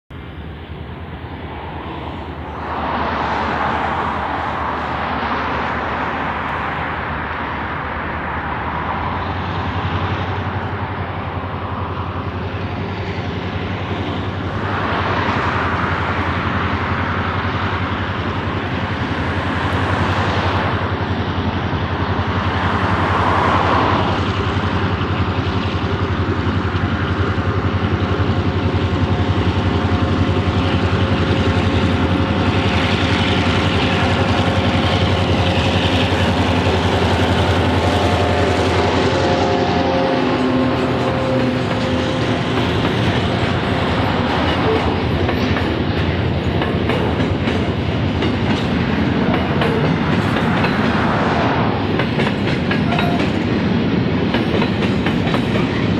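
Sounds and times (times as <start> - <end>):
diesel locomotive engine drone: 0.0 - 55.9
road traffic passing: 0.1 - 55.9.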